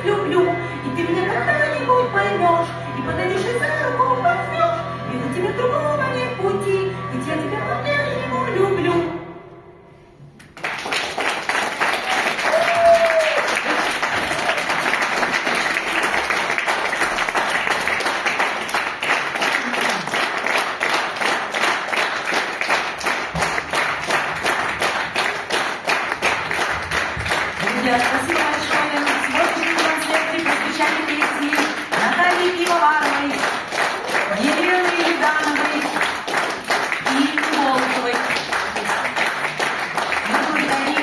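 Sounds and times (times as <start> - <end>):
audience applause: 10.4 - 41.0.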